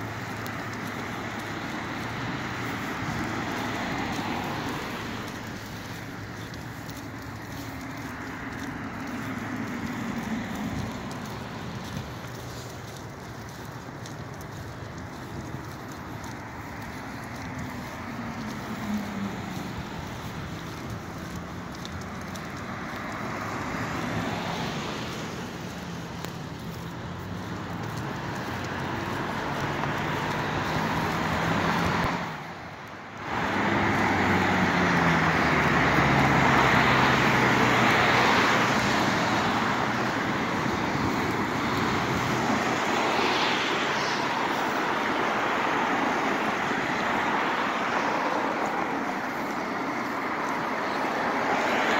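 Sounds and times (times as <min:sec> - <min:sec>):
cars driving past: 0:00.0 - 0:51.9.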